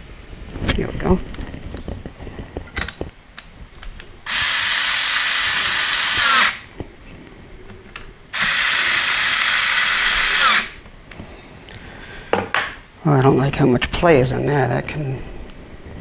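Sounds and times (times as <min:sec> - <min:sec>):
power screwdriver motor whine: 0:04.3 - 0:06.7, 0:08.3 - 0:10.8.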